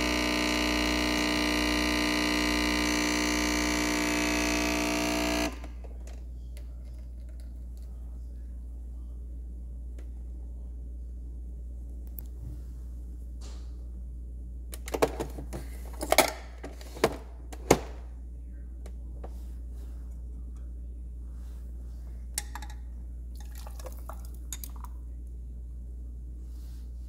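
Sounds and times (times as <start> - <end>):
low steady hum: 0.0 - 27.0
espresso pouring over ice: 23.4 - 24.9.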